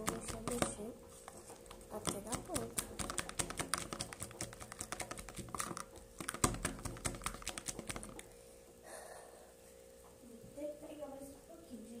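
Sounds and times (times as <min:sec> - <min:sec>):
slime stirring sticky clicks: 0:00.0 - 0:08.3.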